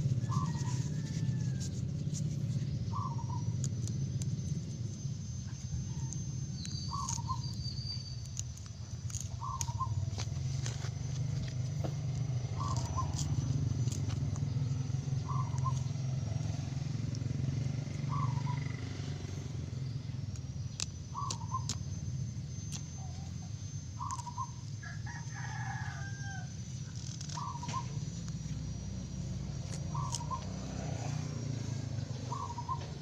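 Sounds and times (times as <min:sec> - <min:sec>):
rooster crowing: 0:00.0 - 0:02.2, 0:05.6 - 0:07.4, 0:24.8 - 0:26.7
low steady hum: 0:00.0 - 0:33.0.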